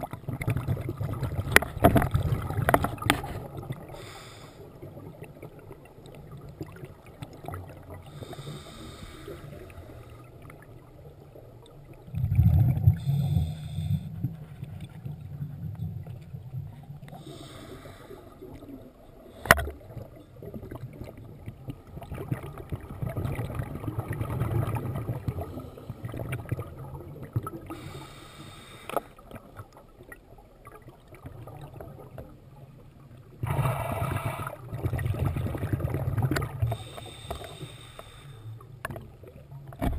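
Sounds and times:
exhaled bubbles rumbling: 0:00.0 - 0:04.1, 0:04.7 - 0:08.8, 0:09.4 - 0:27.9, 0:29.2 - 0:37.0
regulator hissing inhalations: 0:04.0 - 0:04.7, 0:08.1 - 0:10.2, 0:17.2 - 0:18.4, 0:27.7 - 0:29.2, 0:36.7 - 0:38.6.

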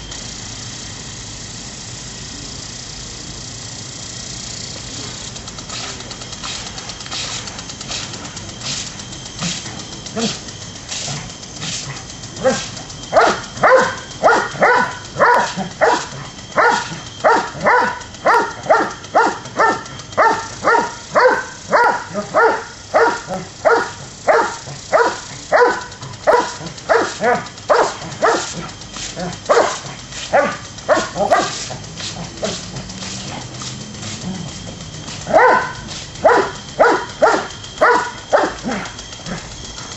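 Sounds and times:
dog barking: 0:12.4 - 0:28.6, 0:29.2 - 0:31.6, 0:35.3 - 0:38.9.

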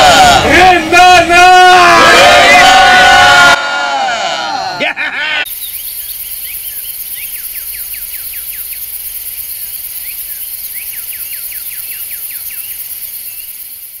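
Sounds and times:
high-pitched insect chorus: 0:05.5 - 0:14.0.

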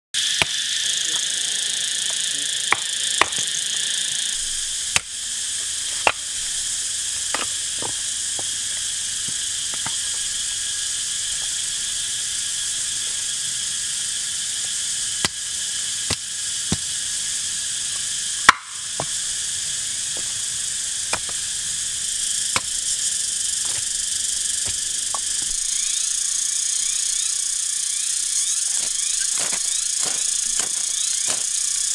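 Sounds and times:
forest insects chorus: 0:00.2 - 0:31.9
knife splitting stick on log: 0:02.7 - 0:03.4, 0:04.9 - 0:06.4, 0:07.2 - 0:10.3, 0:14.6 - 0:17.1, 0:17.9 - 0:19.4, 0:20.1 - 0:21.5, 0:22.3 - 0:25.7, 0:28.8 - 0:31.9.

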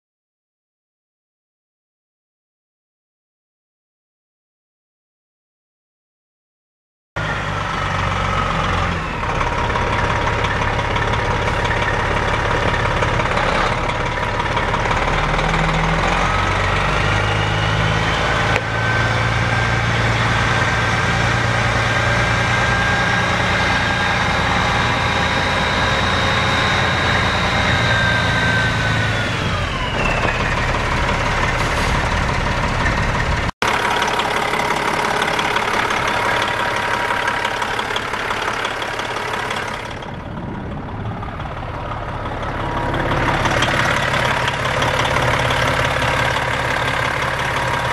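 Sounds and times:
diesel truck engine running: 0:07.2 - 0:47.9
rising engine whine: 0:07.2 - 0:47.9.

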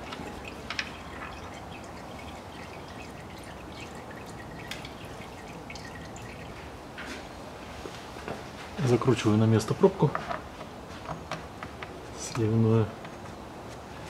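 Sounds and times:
drip ticks: 0:00.0 - 0:06.7
fluid trickling into metal bowl: 0:00.0 - 0:06.8.

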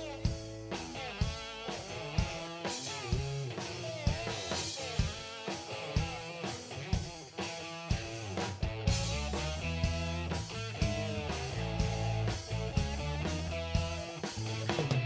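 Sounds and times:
drum kit beat: 0:00.0 - 0:15.0
electric guitar with bent notes: 0:00.0 - 0:15.0
rock band playing: 0:00.0 - 0:15.0.

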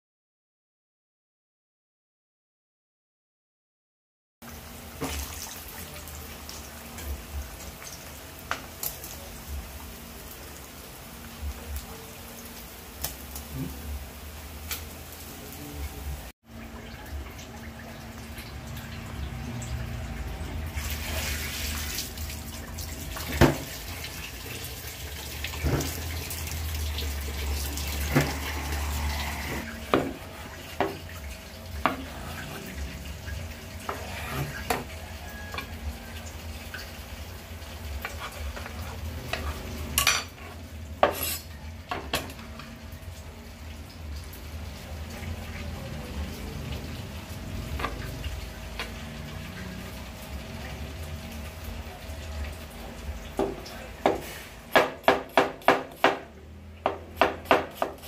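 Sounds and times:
tap water running into sink: 0:16.6 - 0:36.1.

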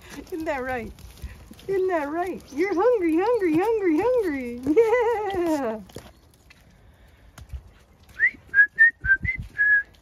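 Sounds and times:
person whistling rising notes: 0:08.2 - 0:10.0.

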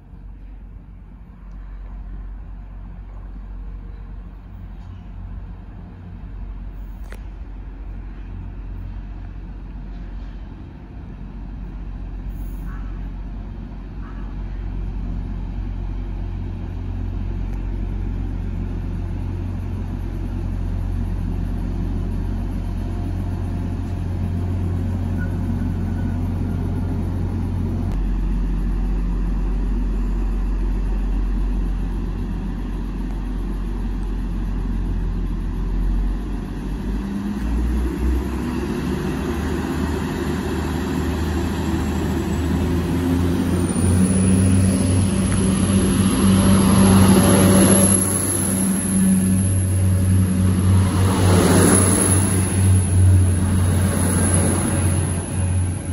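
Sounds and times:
diesel train engine humming: 0:00.0 - 0:55.9
thin high whine: 0:41.6 - 0:55.9.

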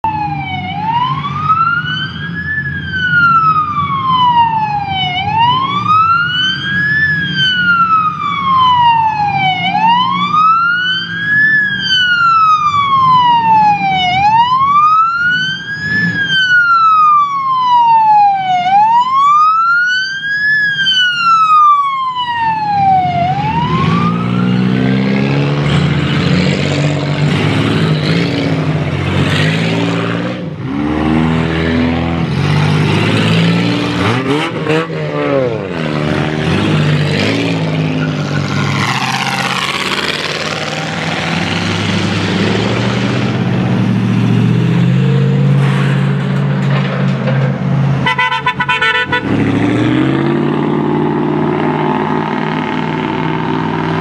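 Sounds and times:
police siren wailing: 0:00.0 - 0:45.6
car engines running: 0:22.9 - 0:54.0.

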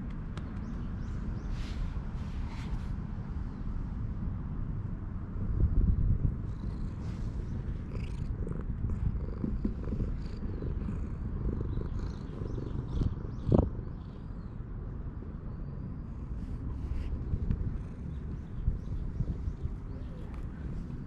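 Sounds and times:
cat purring: 0:06.3 - 0:21.0.

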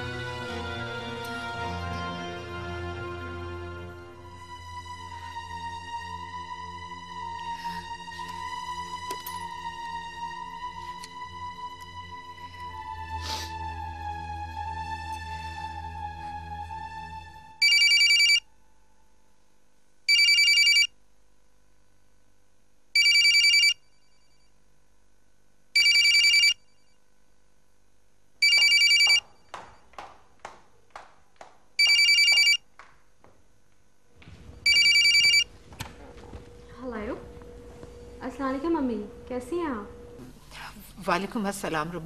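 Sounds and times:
music: 0:00.0 - 0:17.6
telephone ringing: 0:17.6 - 0:18.5, 0:20.1 - 0:20.9, 0:23.0 - 0:24.2, 0:25.8 - 0:26.8, 0:28.4 - 0:29.4, 0:31.8 - 0:32.6, 0:34.6 - 0:35.6.

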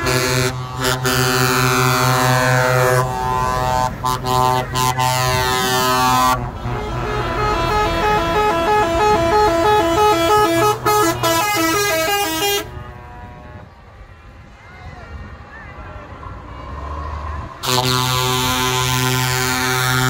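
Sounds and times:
musical horn playing a tune: 0:00.0 - 0:13.7, 0:17.6 - 0:20.0
truck air horns blasting: 0:00.0 - 0:13.8, 0:17.6 - 0:20.0.

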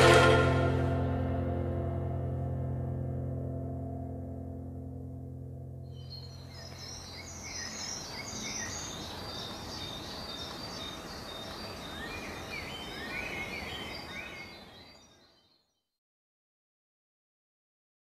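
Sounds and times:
small birds chirping: 0:05.9 - 0:15.9.

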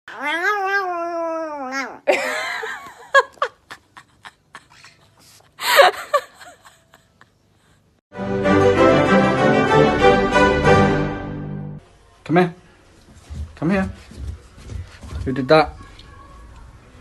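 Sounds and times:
small dog whining cry: 0:00.1 - 0:02.1
music: 0:08.1 - 0:11.8.

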